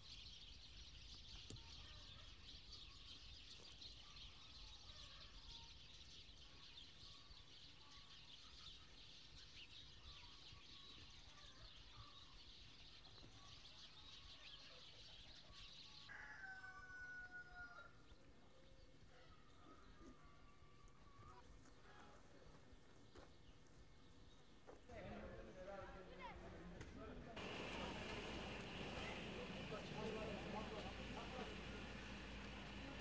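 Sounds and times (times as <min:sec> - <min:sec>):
rooster crowing: 0:16.1 - 0:18.0, 0:27.4 - 0:33.0.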